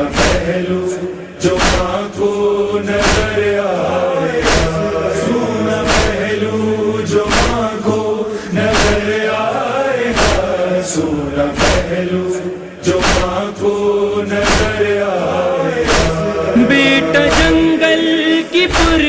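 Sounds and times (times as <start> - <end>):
chorus chanting: 0.0 - 19.0
chest-beating thuds: 15.9 - 17.8
higher solo voice: 16.6 - 18.1.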